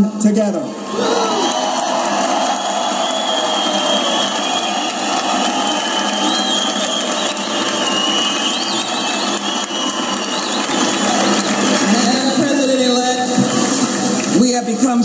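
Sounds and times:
large crowd applauding: 0.9s - 14.4s
whistles: 2.4s - 11.6s.

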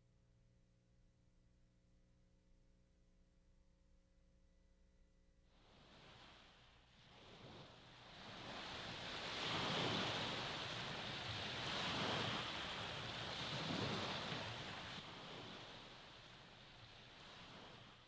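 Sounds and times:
waves washing on water: 5.6s - 18.0s.

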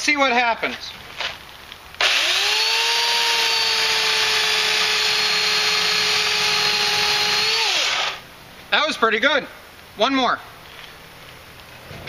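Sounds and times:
electric chainsaw cutting log: 2.0s - 8.2s.

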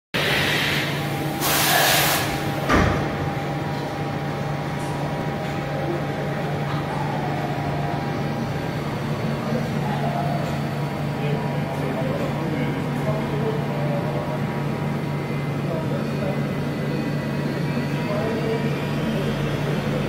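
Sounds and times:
loud hiss: 0.2s - 2.6s
lathe machine hum: 0.2s - 20.0s
sharp clunk: 2.6s - 3.2s.

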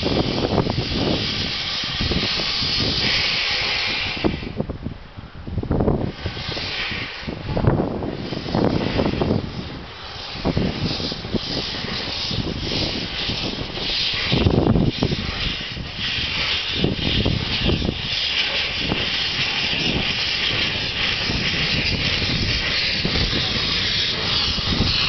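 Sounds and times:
steam locomotive chuffing: 0.0s - 4.6s, 6.1s - 25.0s
steam hiss: 0.0s - 4.9s, 5.8s - 25.0s.

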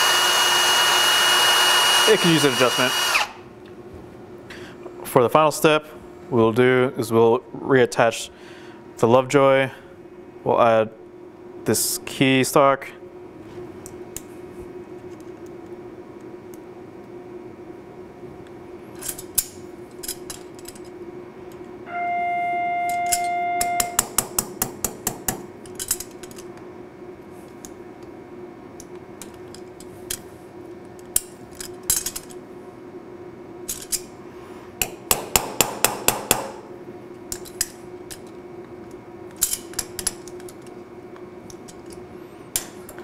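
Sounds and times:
steady hum: 0.0s - 43.0s
loud steady beep: 21.9s - 24.0s
wrench and metal parts clinking: 25.6s - 26.4s, 31.2s - 32.4s.

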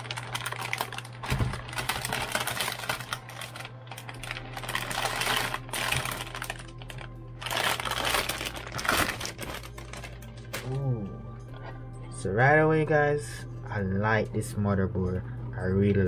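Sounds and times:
anti-static bag crinkling: 0.0s - 10.8s.

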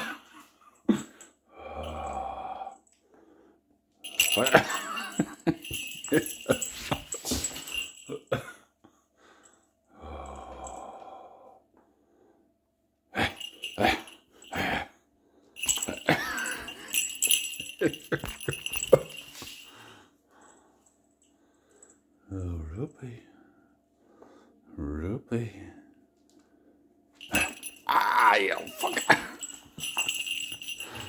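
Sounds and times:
light jingling: 4.0s - 8.4s, 13.2s - 14.9s, 15.5s - 22.1s, 27.2s - 31.0s.

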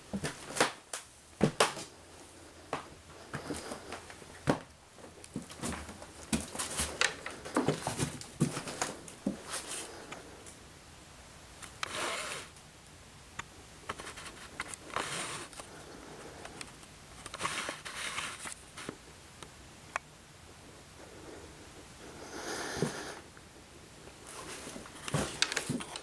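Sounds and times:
soft breaths: 1.9s - 4.4s, 5.0s - 10.6s, 14.2s - 19.2s, 20.4s - 26.0s
footsteps on debris: 2.7s - 9.8s, 24.5s - 26.0s.

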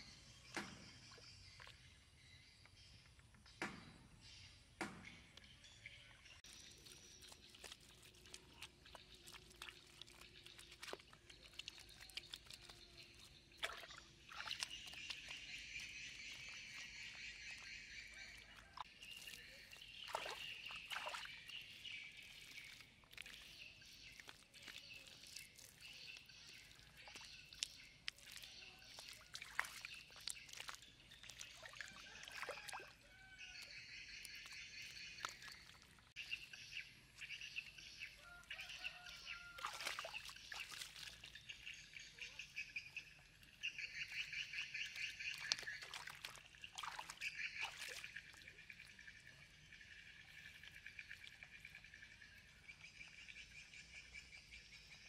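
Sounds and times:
hands slapping wet mud: 6.4s - 37.8s, 38.4s - 41.6s, 43.4s - 48.9s.

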